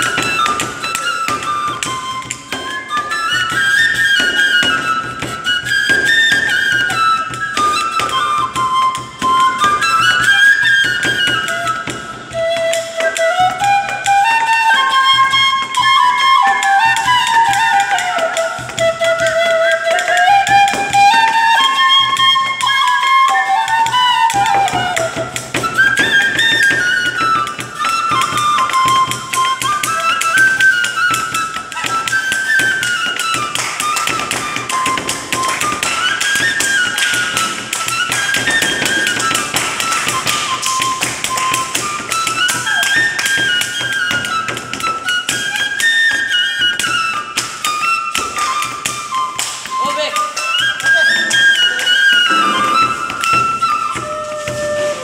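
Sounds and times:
bamboo flute melody: 0.0s - 55.0s
hands drumming on wooden tabletop: 48.1s - 55.0s.

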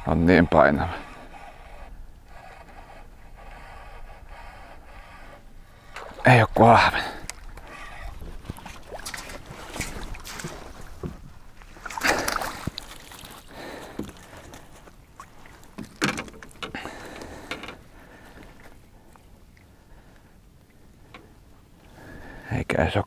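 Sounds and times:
knocks and clatter in boat: 7.6s - 18.7s.

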